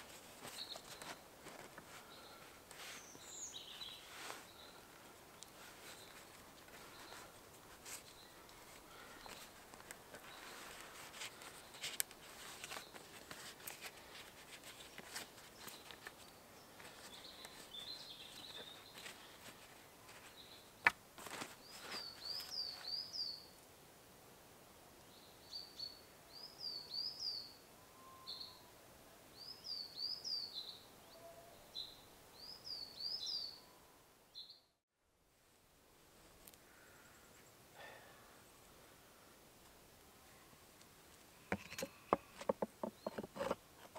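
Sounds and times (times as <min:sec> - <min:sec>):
songbird singing: 0:00.0 - 0:01.2, 0:02.0 - 0:20.9, 0:21.5 - 0:23.6, 0:25.0 - 0:28.7, 0:29.3 - 0:34.8, 0:41.3 - 0:43.9
canvas rustling: 0:00.0 - 0:04.6, 0:05.6 - 0:20.5, 0:21.2 - 0:22.9.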